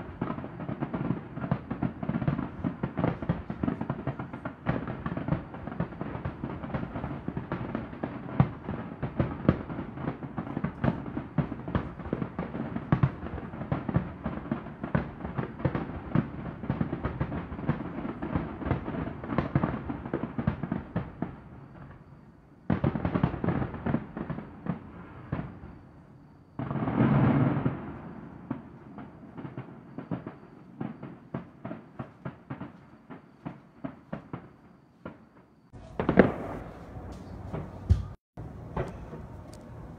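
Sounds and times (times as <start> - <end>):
rumbling firework burst: 0.0 - 34.5, 35.7 - 39.9
fireworks bangs and crackling: 0.0 - 39.9.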